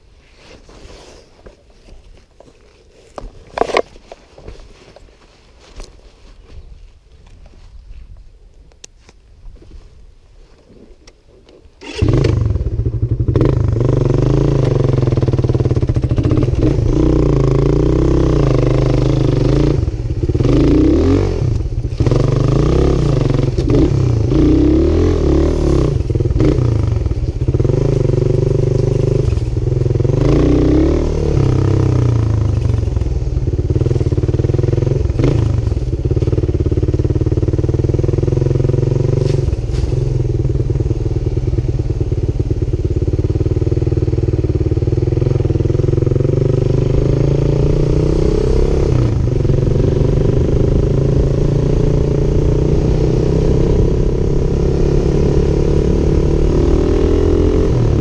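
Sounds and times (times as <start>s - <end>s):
motorcycle engine revving: 11.8s - 58.0s.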